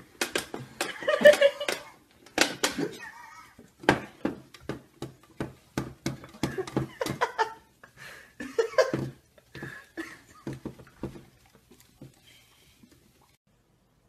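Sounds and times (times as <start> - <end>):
person laughing: 0.8 - 2.0, 2.7 - 3.6, 6.2 - 10.6
dog licking: 9.1 - 13.4.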